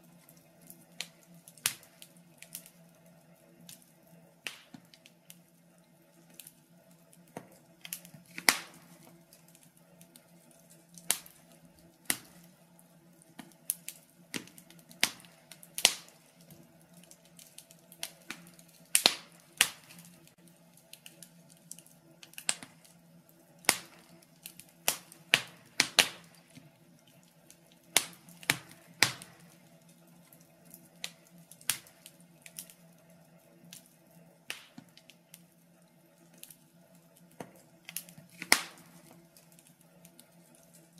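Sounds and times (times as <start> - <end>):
wood fire crackling in a stove: 0.0 - 40.9.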